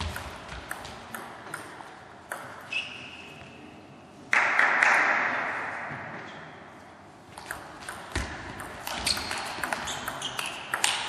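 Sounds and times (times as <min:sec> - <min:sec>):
table tennis ball clicking: 0:00.0 - 0:02.7, 0:07.4 - 0:11.0.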